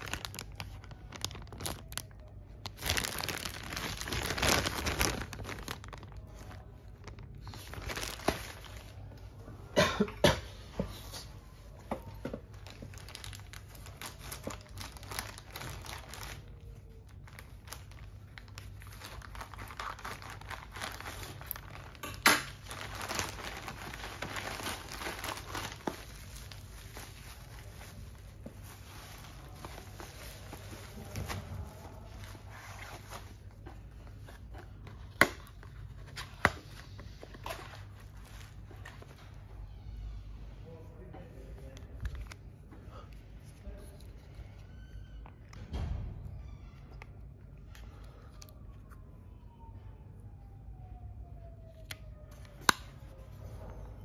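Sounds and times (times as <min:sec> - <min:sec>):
plastic mailer bag crinkling: 0:00.0 - 0:09.2, 0:12.4 - 0:39.4
bubble wrap rustling: 0:00.0 - 0:09.4, 0:11.2 - 0:40.0, 0:41.3 - 0:45.3.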